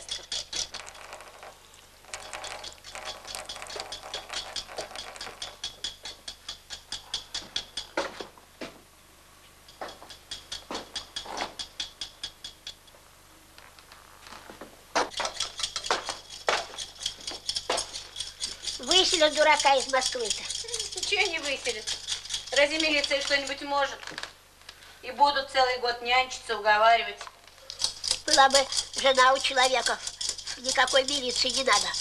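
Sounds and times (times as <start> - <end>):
kitchen utensils clicking and rattling: 0.0 - 8.0, 9.7 - 12.9, 15.1 - 24.2, 27.6 - 32.0.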